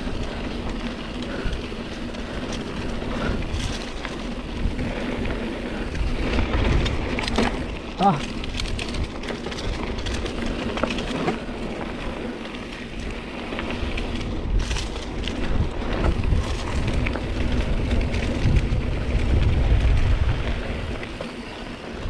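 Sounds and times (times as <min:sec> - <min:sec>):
bike clicks and rattles: 0:00.0 - 0:22.0
tyres crackling over gravel: 0:00.0 - 0:22.0.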